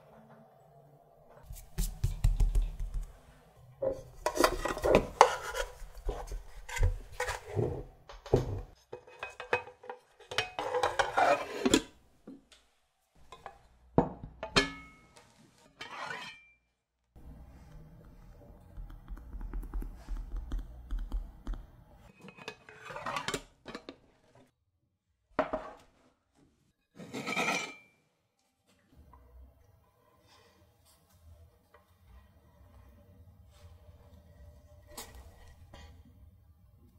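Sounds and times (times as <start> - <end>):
metal tin lid sliding and clanking: 3.9 - 7.9, 8.9 - 12.0, 22.1 - 24.4, 26.9 - 27.9.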